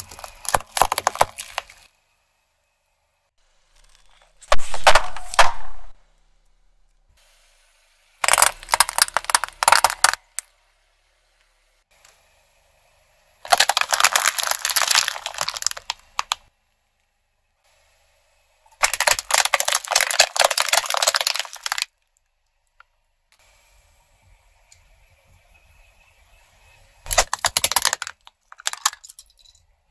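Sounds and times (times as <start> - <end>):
plastic crackling under car tyre: 0.0 - 1.9, 8.2 - 10.5, 13.4 - 16.5, 18.8 - 22.9, 27.1 - 29.0.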